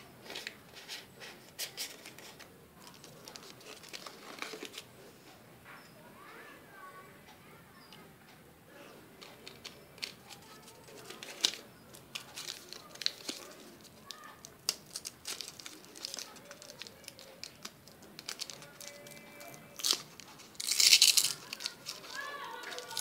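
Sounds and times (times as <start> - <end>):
blister pack crinkling: 1.6 - 4.9, 9.2 - 23.0.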